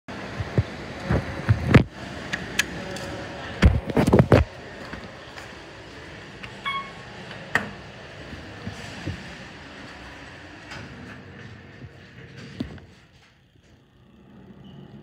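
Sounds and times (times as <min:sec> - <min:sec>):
short electronic beep: 0:06.6 - 0:07.0.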